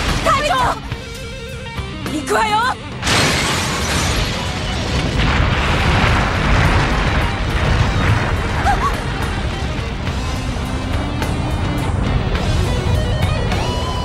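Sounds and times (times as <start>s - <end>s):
background music: 0.0s - 14.0s
avalanche roar: 3.8s - 14.0s.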